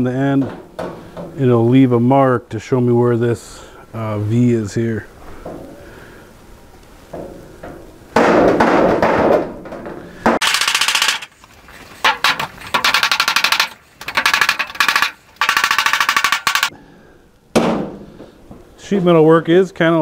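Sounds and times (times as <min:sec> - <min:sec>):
steel sheet clattering: 0:08.2 - 0:16.7.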